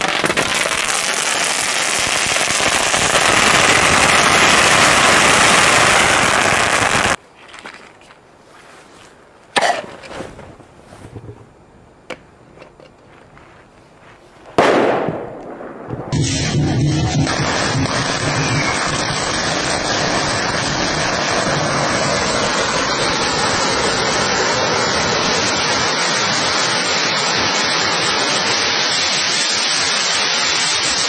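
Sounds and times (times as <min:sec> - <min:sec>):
firework fountain crackling: 0:00.0 - 0:07.2, 0:14.5 - 0:31.0
sharp pop: 0:14.6 - 0:18.8
firecracker bang: 0:14.6 - 0:23.0.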